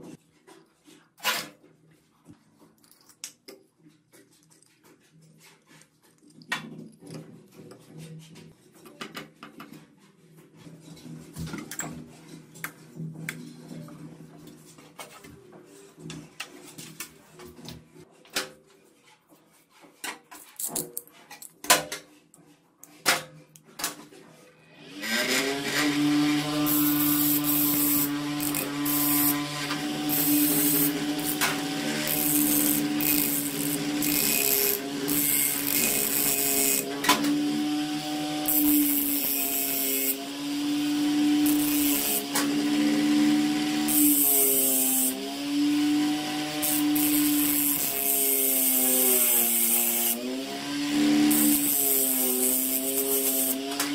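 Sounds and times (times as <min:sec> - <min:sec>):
small motor spinning hum: 0:24.8 - 0:36.9, 0:51.3 - 0:53.6
blade grinding on abrasive disc: 0:24.9 - 0:53.9.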